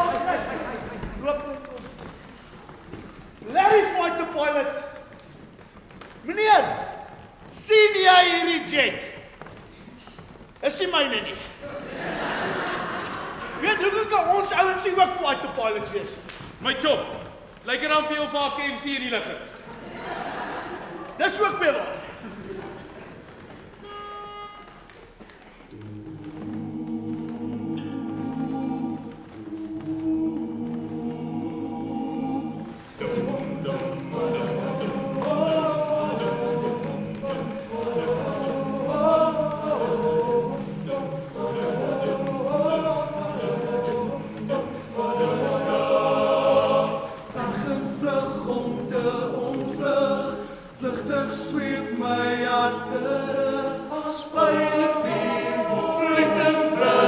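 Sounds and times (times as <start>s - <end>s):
men's choir singing: 0.0s - 1.6s, 11.6s - 13.9s, 25.7s - 57.0s.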